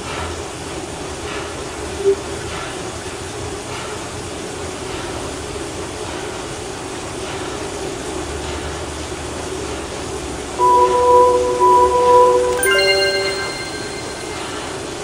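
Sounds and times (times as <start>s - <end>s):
loud electronic beep: 10.6s - 14.7s.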